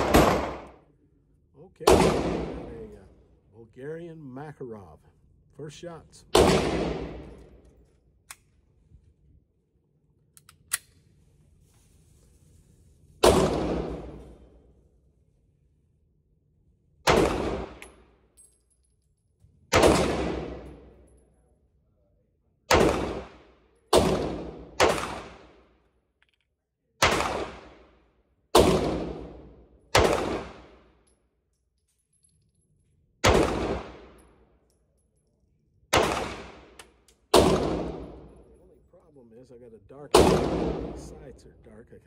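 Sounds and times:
pistol shots indoors: 0:00.0 - 0:01.0, 0:01.8 - 0:03.4, 0:06.2 - 0:08.6, 0:13.2 - 0:14.9, 0:16.7 - 0:21.4, 0:22.5 - 0:32.2, 0:33.1 - 0:38.5, 0:40.1 - 0:41.2.

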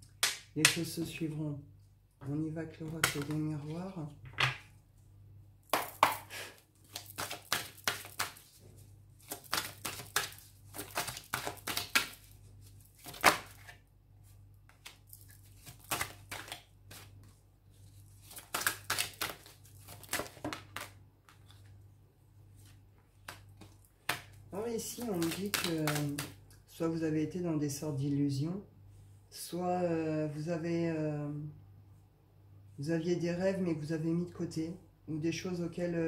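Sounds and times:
cards being shuffled: 0:02.8 - 0:03.8, 0:05.8 - 0:08.6, 0:09.2 - 0:13.8, 0:14.6 - 0:21.8, 0:22.6 - 0:26.4.

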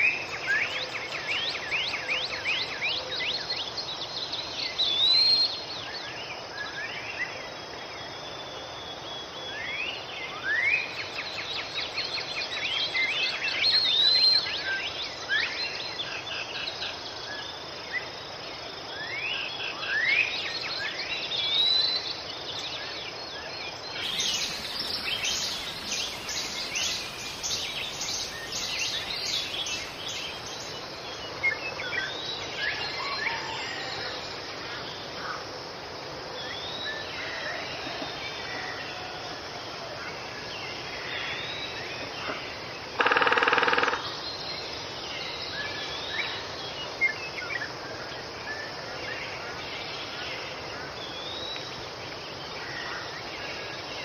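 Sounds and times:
birds whistling: 0:24.0 - 0:30.9
insects chirring: 0:24.0 - 0:32.7, 0:43.0 - 0:44.2.

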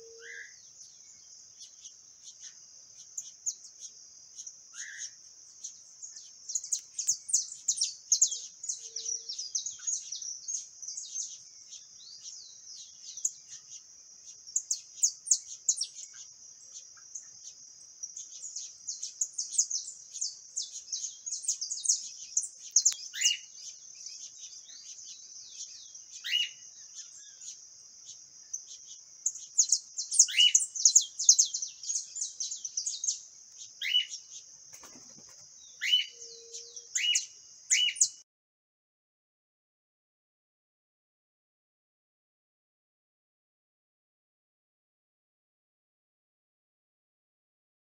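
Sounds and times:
finches chirping: 0:00.0 - 0:38.2.

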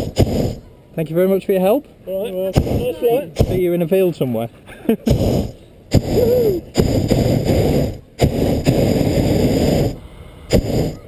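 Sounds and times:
propane burner blasts: 0:00.0 - 0:00.7, 0:02.4 - 0:03.9, 0:05.0 - 0:11.0.

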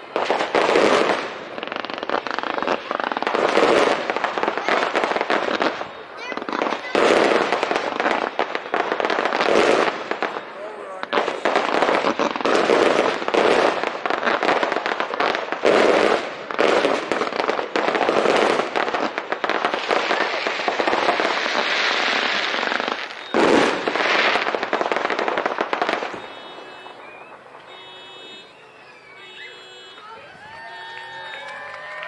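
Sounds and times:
fireworks bangs: 0:00.0 - 0:32.0
fireworks crackling: 0:00.0 - 0:32.0.

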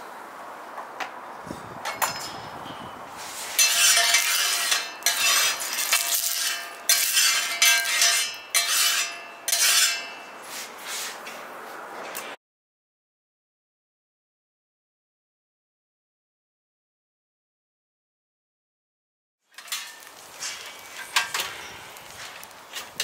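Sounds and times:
metal spatula scraping grill plate: 0:03.2 - 0:11.2, 0:19.5 - 0:23.0.

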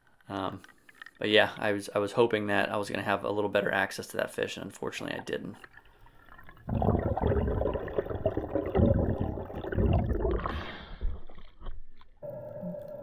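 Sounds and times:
water rushing and gurgling: 0:06.1 - 0:11.2.

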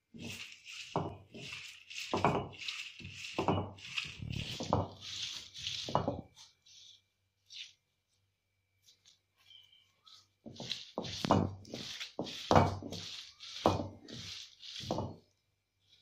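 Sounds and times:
stone roller scraping on slab: 0:00.1 - 0:06.9, 0:10.4 - 0:15.4.

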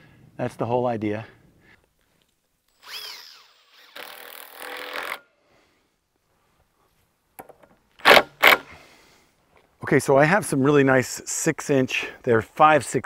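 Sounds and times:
cordless drill driving screws into wood: 0:02.7 - 0:05.3, 0:08.0 - 0:08.8.

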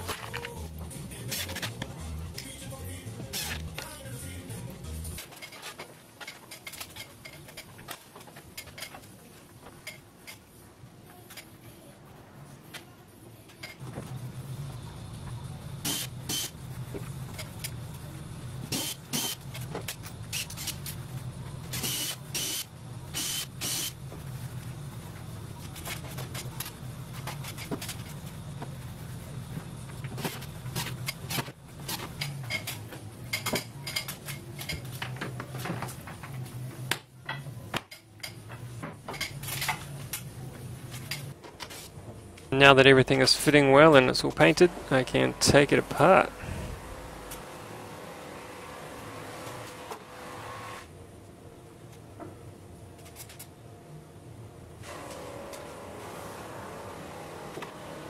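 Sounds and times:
steady low hum: 0:11.7 - 0:49.9.

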